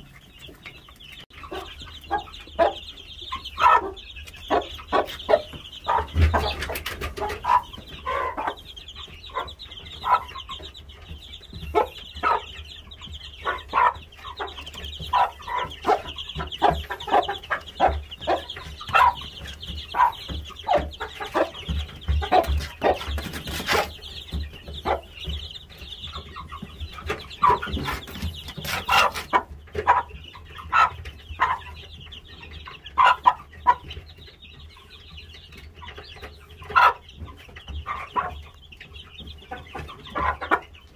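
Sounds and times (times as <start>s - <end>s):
chickens clucking: 0.0s - 40.9s.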